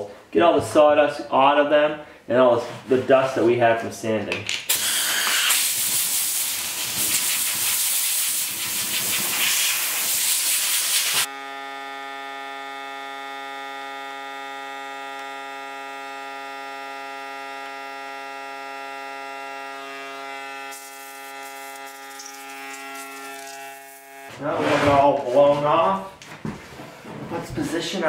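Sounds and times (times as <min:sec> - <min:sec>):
compressed air blowgun hissing: 0:04.7 - 0:11.3.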